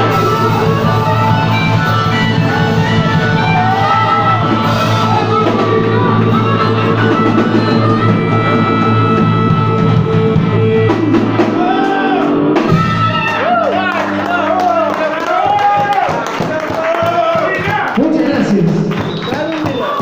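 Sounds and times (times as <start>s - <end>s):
electric guitar strummed: 0.0s - 15.9s
drum kit: 0.0s - 20.0s.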